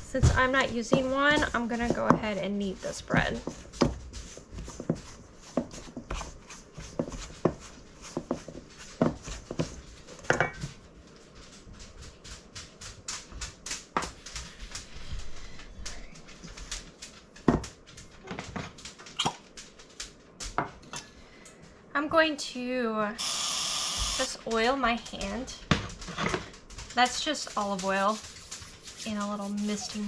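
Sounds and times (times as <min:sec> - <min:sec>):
dough kneading thumps and slaps: 0:00.0 - 0:10.6.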